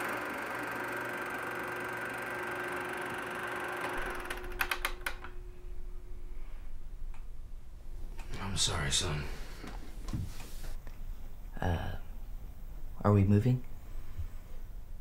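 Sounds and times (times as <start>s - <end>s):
film projector whirring: 0.0s - 5.4s.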